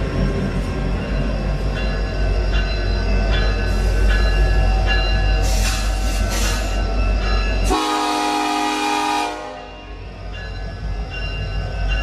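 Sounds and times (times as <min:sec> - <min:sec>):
locomotive air horn blast: 0:07.7 - 0:09.6.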